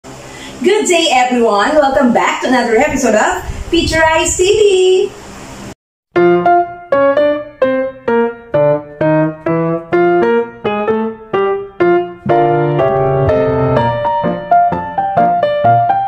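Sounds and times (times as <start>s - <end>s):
keyboard melody and chords: 6.2s - 16.0s.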